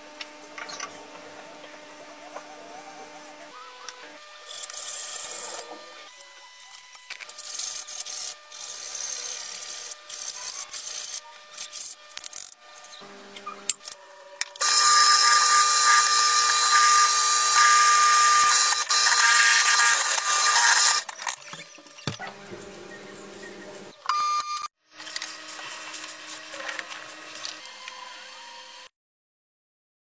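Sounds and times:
drill press drilling into metal: 0:14.5 - 0:21.3.

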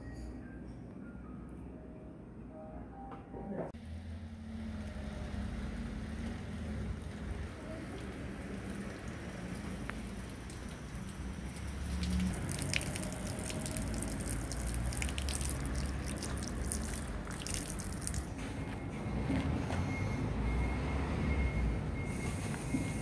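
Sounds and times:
water trickling into stone basin: 0:06.0 - 0:18.4.

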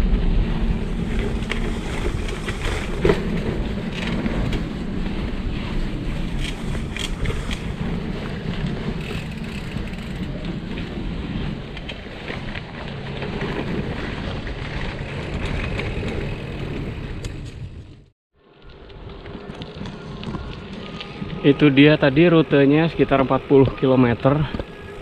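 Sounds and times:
wind buffeting microphone: 0:00.0 - 0:18.0
bicycle tyres rolling on road: 0:00.0 - 0:25.0.

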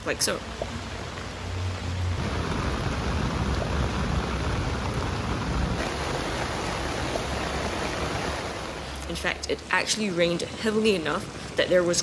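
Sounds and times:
heavy rain on a tent: 0:00.8 - 0:09.1
low rumble: 0:02.0 - 0:07.4.

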